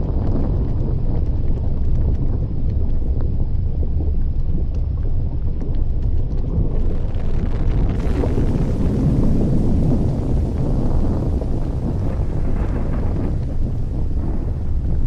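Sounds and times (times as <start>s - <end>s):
faint crackling ticks: 0.0s - 8.2s, 11.3s - 15.0s
volcano vent deep roar: 0.0s - 15.0s.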